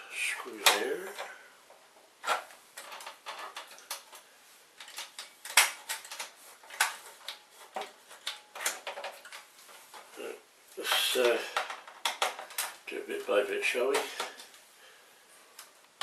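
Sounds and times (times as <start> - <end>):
plastic and metal parts clicking: 2.2 - 10.1, 10.9 - 12.9.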